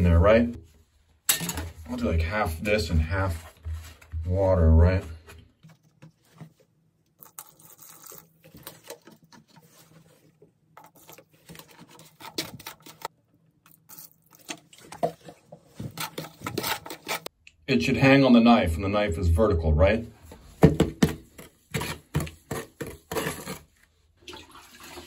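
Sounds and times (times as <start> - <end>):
trowel scraping mortar in bucket: 15.8 - 17.3, 21.4 - 23.8.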